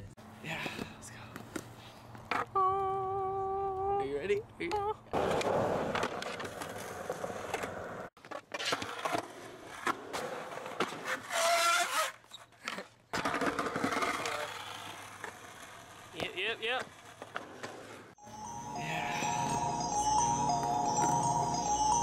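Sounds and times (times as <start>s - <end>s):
skateboard wheels rolling: 5.1s - 18.1s
skateboard clacking and slapping: 12.6s - 17.9s.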